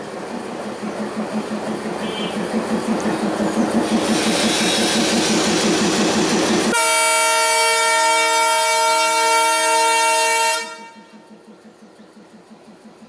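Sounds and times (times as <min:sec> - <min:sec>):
diesel locomotive rumbling past: 0:00.0 - 0:13.0
locomotive horn blast: 0:02.0 - 0:02.4, 0:06.7 - 0:11.2.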